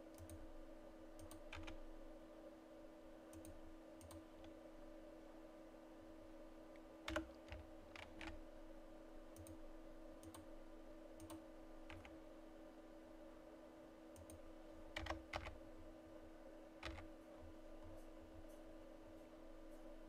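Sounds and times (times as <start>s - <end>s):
faint steady hum: 0.0s - 20.0s
computer keyboard and mouse clicks: 0.1s - 0.4s, 1.2s - 1.8s, 3.3s - 4.5s, 7.1s - 8.4s, 10.2s - 10.5s, 11.2s - 12.2s, 14.2s - 14.4s, 15.0s - 15.6s, 16.8s - 17.1s.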